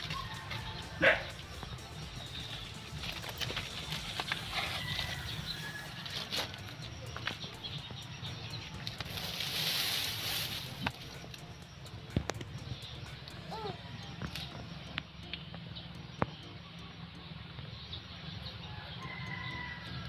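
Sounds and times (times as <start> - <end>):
soft hissing swell: 9.1 - 11.8.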